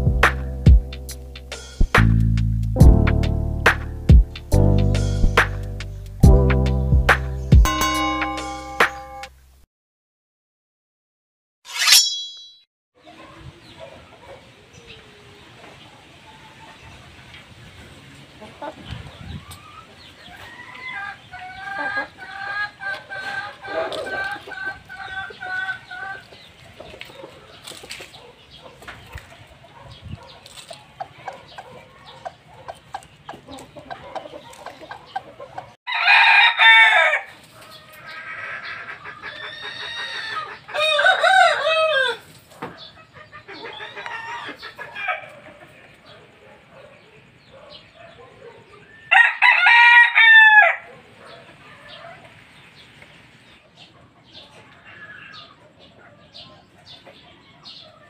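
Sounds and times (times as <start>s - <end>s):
chicken clucking and calling: 18.2s - 46.9s, 48.5s - 58.0s.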